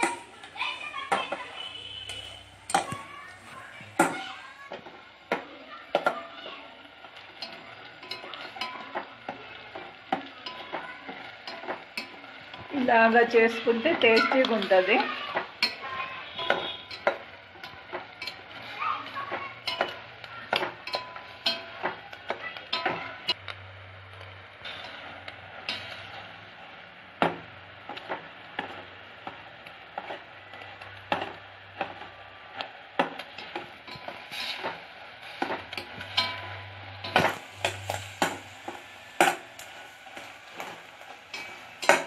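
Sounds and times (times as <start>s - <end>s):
spoon clinking against pot: 0.0s - 3.2s, 14.0s - 22.0s
spoon scraping steel pot: 0.0s - 4.1s, 33.4s - 42.0s
sugar syrup sizzling: 0.0s - 42.0s.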